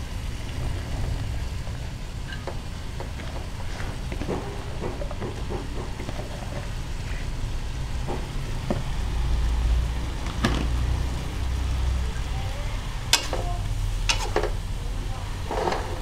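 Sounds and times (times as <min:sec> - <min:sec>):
food sizzling in a wok: 0:00.0 - 0:16.0
metal spatula clicking on pan: 0:13.1 - 0:13.5.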